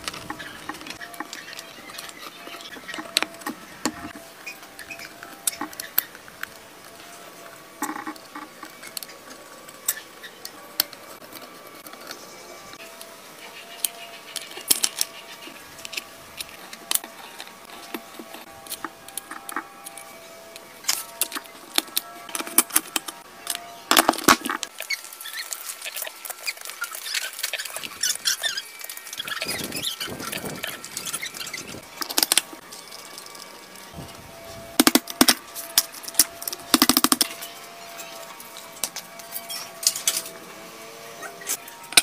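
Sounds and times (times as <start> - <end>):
metal engine parts clicking: 15.8 - 33.9.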